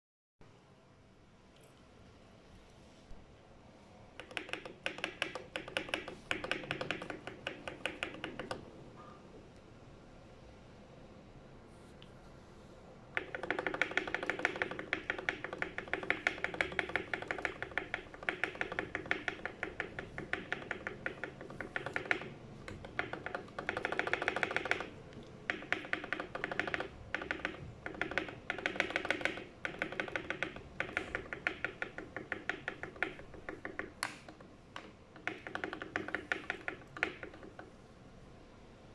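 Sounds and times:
keyboard spacebar pressed rapidly: 4.2s - 8.6s, 13.2s - 37.7s.

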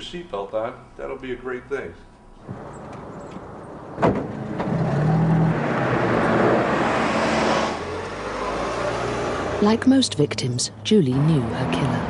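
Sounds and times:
car engine and road noise: 2.3s - 12.0s.

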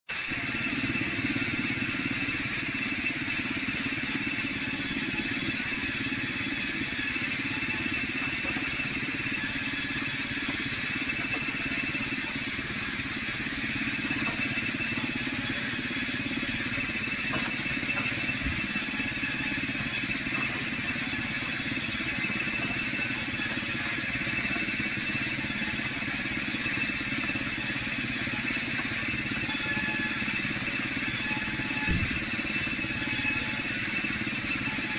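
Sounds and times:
band saw whine: 0.1s - 34.9s
low motor hum: 31.8s - 32.3s.

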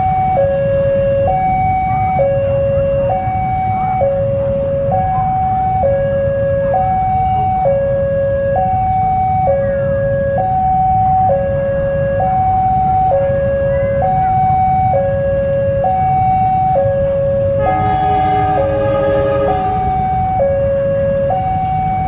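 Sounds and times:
level-crossing warning alarm: 0.0s - 22.0s
locomotive horn: 17.4s - 21.4s.

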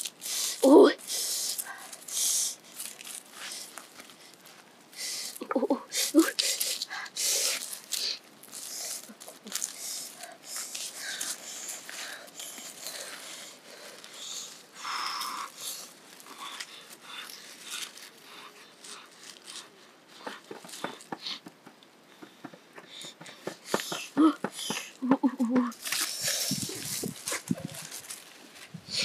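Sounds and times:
corn husks rustling and tearing: 1.5s - 4.8s, 6.2s - 20.8s, 25.7s - 29.0s.

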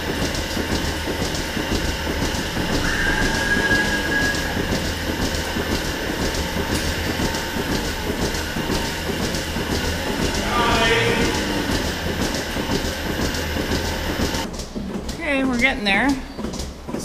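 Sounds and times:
milking machinery hum: 0.0s - 17.0s
pulsators ticking: 0.0s - 17.0s
high whistle: 2.8s - 4.7s.

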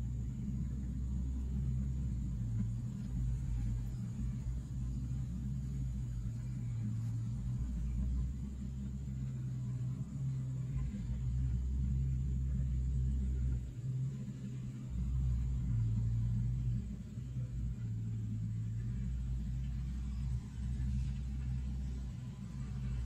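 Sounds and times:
heavy diesel engines rumbling: 0.0s - 23.0s.

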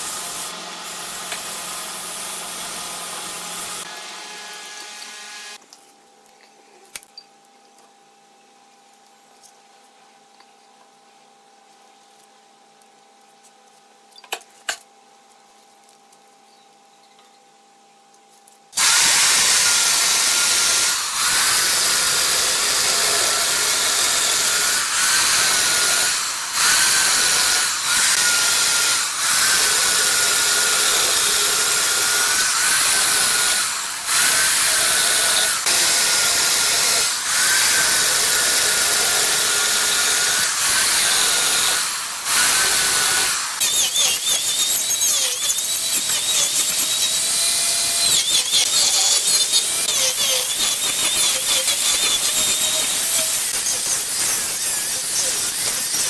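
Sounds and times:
angle grinder cutting wood: 0.0s - 5.6s, 18.8s - 56.0s.

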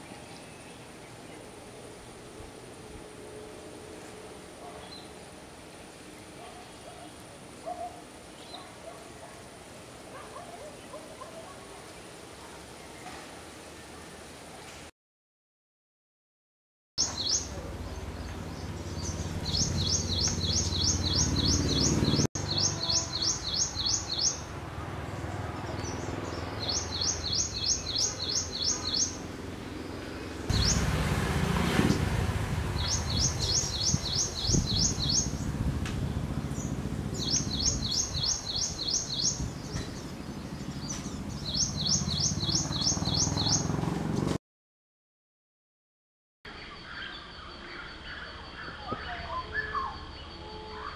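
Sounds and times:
bird singing high sharp notes: 18.6s - 24.4s.

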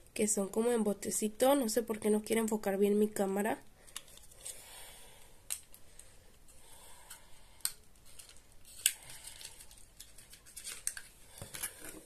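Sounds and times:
rustling of small packages: 3.8s - 12.0s.

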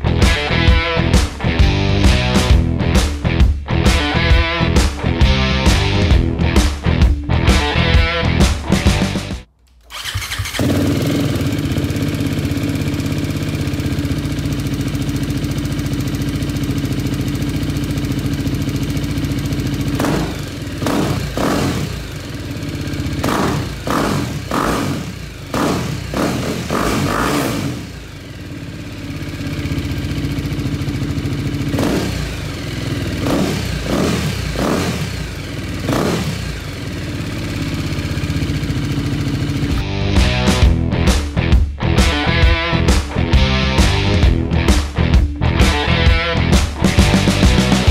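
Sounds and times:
motorcycle throttle blips: 9.5s - 39.8s
motorcycle engine idling: 9.8s - 40.8s.

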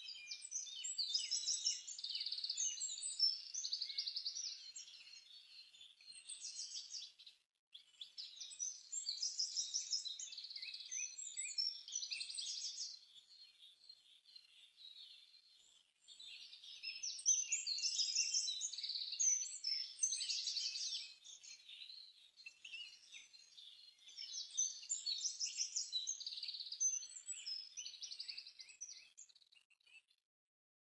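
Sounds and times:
birds chirping and singing: 0.1s - 29.6s.

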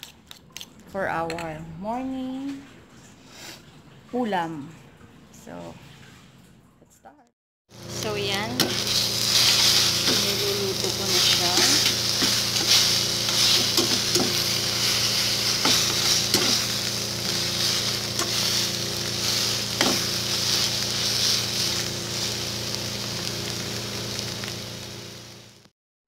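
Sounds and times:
eggs sizzling in frying pan: 7.7s - 25.7s
spatula scraping pan: 8.5s - 22.4s.

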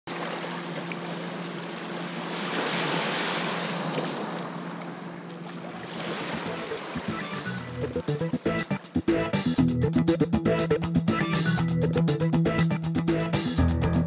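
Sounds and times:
small waves washing on sand: 0.1s - 8.2s.

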